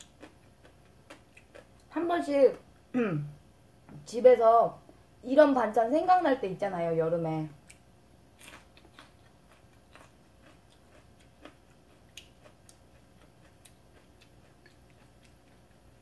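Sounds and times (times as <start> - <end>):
quiet chewing: 0.0 - 1.9, 7.6 - 16.0.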